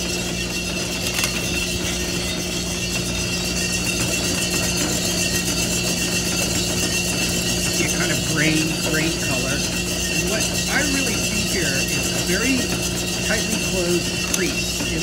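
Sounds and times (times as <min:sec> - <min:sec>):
coffee roaster mechanical drone: 0:00.0 - 0:15.0.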